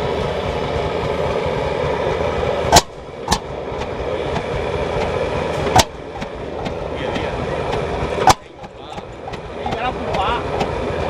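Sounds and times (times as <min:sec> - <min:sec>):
engine exhaust bangs: 0:00.0 - 0:11.0
steady rushing noise: 0:00.0 - 0:11.0
faint engine ticks: 0:02.7 - 0:11.0.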